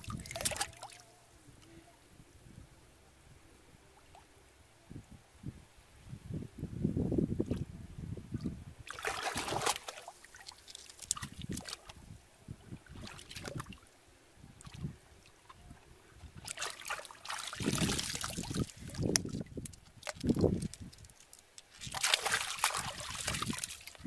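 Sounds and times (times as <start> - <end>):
water trickling: 0.0 - 1.1, 16.4 - 24.0
hands splashing in water: 0.1 - 1.0, 8.9 - 11.9, 16.4 - 24.0.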